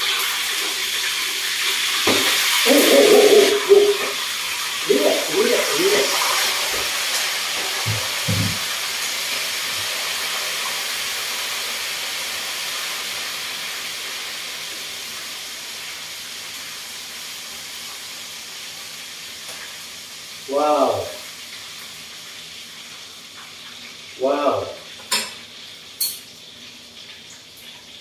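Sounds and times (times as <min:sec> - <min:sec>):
prawns sizzling in hot oil: 0:00.0 - 0:28.0
soft knocks: 0:07.9 - 0:08.7.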